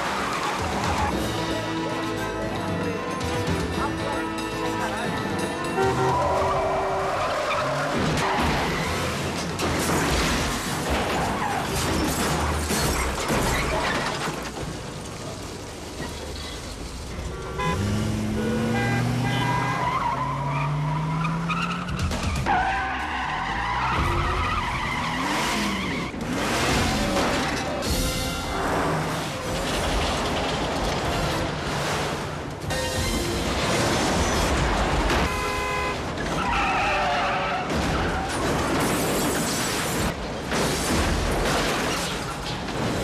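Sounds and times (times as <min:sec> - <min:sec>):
film score: 0:00.0 - 0:43.0
tyres skidding and squealing: 0:00.0 - 0:43.0
car engines revving: 0:14.3 - 0:43.0.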